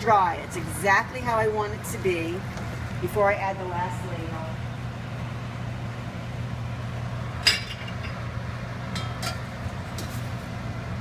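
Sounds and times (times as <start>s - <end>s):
steady low hum: 0.0s - 11.0s
utensils clinking on steel pots: 8.9s - 10.2s.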